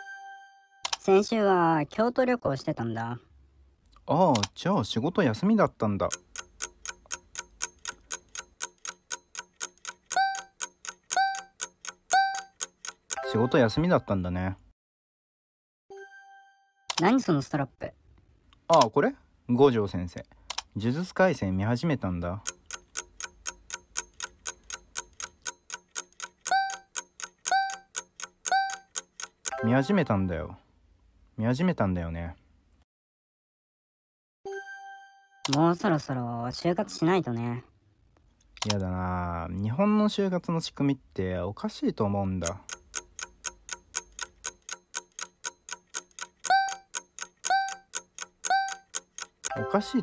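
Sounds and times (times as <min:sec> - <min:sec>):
clock ticking: 0:05.8 - 0:13.6, 0:22.3 - 0:29.6, 0:42.4 - 0:50.0.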